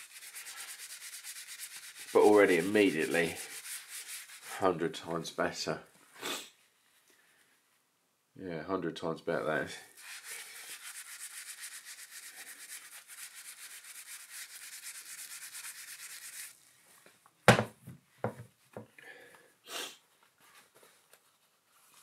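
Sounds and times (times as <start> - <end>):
pad scrubbing plastic wheel rim: 0.0 - 4.5
knocks: 17.5 - 18.5.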